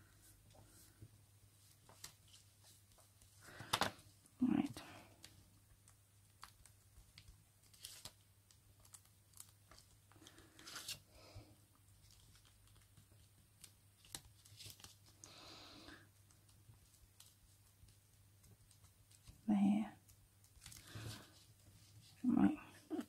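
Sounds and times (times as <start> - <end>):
paper rustling and crinkling: 0.2 - 4.2, 5.2 - 15.3, 20.4 - 22.2.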